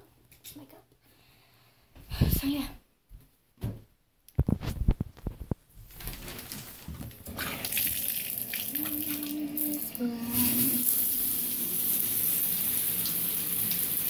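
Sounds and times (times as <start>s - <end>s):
shower water spraying: 7.4s - 14.0s.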